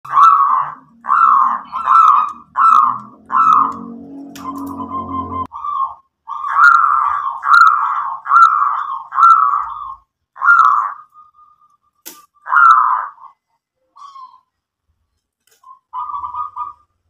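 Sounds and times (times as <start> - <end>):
dove cooing: 0.1 - 11.0, 15.8 - 16.9.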